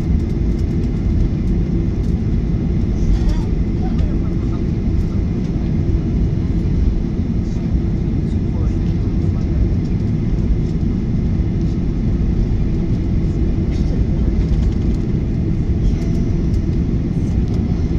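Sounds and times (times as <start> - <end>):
airplane cabin rumble: 0.0 - 17.9.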